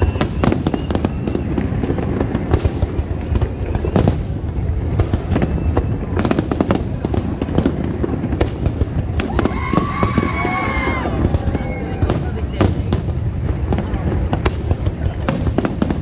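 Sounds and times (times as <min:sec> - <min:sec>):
firework bangs and crackles: 0:00.0 - 0:16.0
fireworks bursting: 0:00.0 - 0:16.0.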